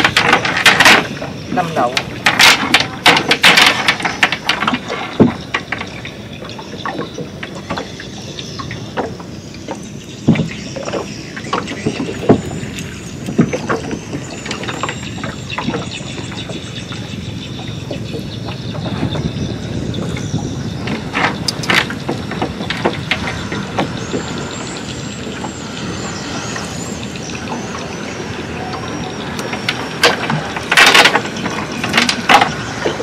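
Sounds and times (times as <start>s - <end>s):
steady low rumble: 8.0s - 33.0s.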